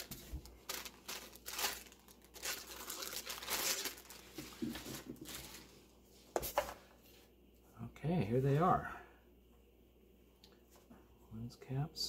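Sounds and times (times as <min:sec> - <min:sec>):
plastic bag crinkling: 0:00.0 - 0:05.8.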